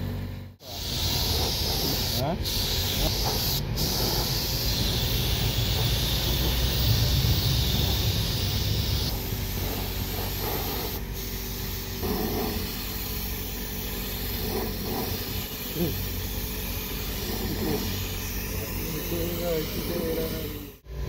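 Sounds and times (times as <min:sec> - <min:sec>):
spray gun hissing: 0:00.6 - 0:20.8.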